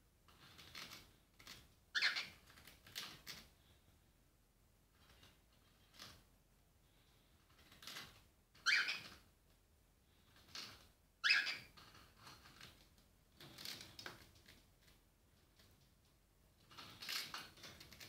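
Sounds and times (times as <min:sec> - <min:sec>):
bird pecking and crunching food: 0:16.6 - 0:18.0.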